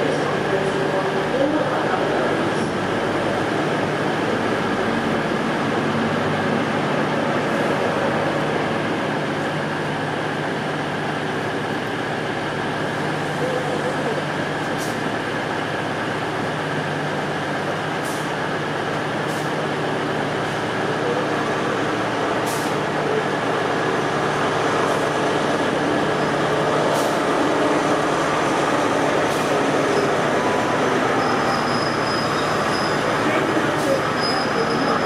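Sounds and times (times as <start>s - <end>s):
train wheels rumbling: 0.0s - 35.0s
faint high squeal: 31.2s - 33.1s, 33.9s - 35.0s.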